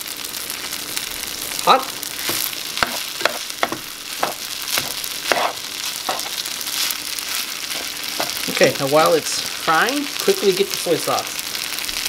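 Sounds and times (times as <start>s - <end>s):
food sizzling in a skillet: 0.0s - 12.0s
spatula scraping a pan: 2.2s - 8.5s.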